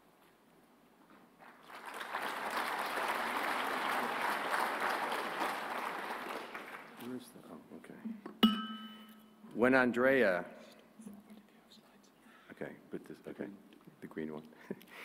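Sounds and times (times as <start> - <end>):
large audience applauding: 1.4 - 7.2.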